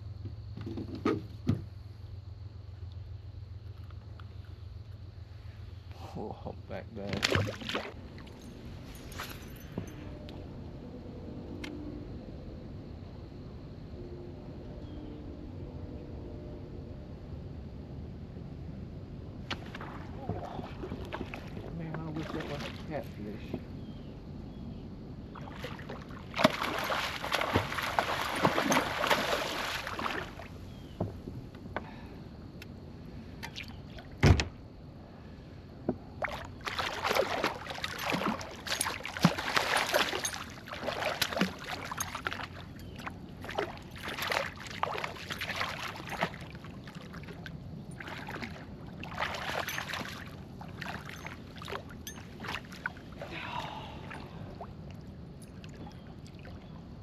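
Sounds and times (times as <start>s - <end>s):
fish splashing at surface: 25.5s - 30.5s, 36.2s - 42.6s.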